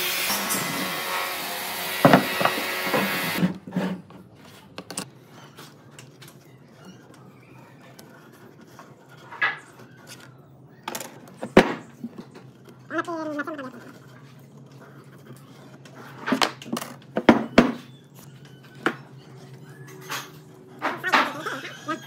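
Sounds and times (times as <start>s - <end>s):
angle grinder sanding wood: 0.0s - 3.4s.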